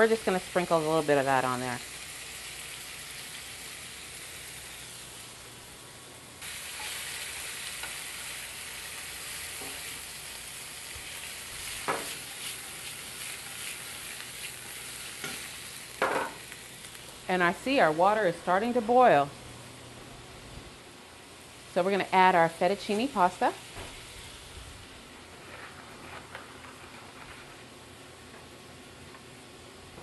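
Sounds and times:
chicken sizzling in frying pan: 0.0s - 17.4s.

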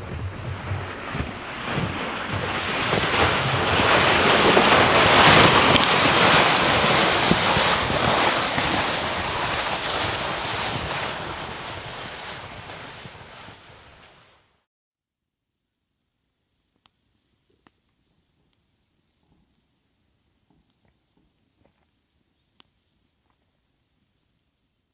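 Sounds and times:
wind rushing: 0.0s - 14.2s.

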